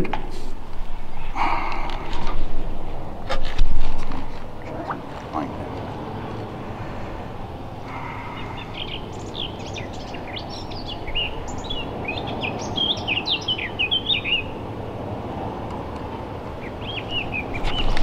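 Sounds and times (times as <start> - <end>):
low background rush: 0.0 - 18.0
songbird chirping: 4.6 - 14.8, 15.7 - 18.0.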